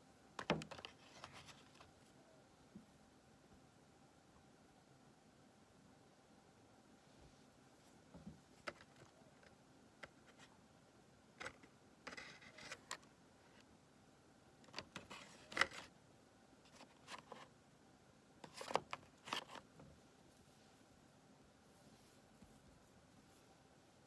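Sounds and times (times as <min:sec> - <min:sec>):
paper rustling: 0:18.4 - 0:19.7.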